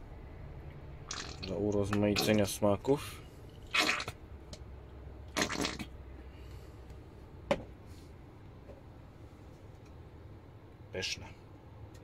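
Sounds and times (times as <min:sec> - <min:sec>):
squeeze bottle squirting sauce: 0:03.7 - 0:04.2.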